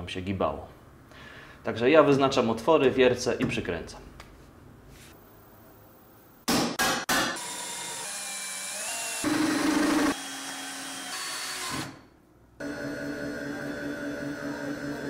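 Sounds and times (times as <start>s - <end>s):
cordless drill running: 7.4s - 12.0s.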